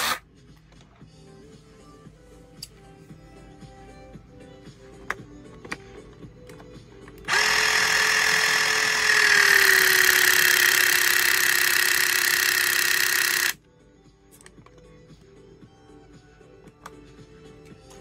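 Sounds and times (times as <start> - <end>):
hydraulic crimper motor whining: 7.2 - 13.6.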